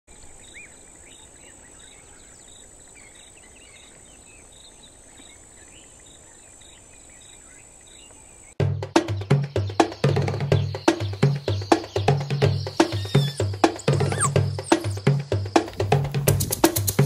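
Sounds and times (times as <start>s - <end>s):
birds whistling: 0.1s - 16.0s
high insect drone: 12.5s - 17.0s
bird short chirps: 12.7s - 15.1s.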